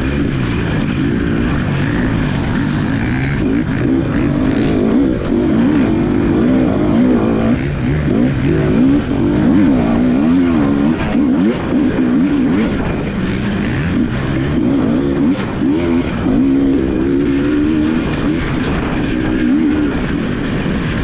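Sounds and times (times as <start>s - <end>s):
dirt bike engines revving: 0.0s - 21.0s.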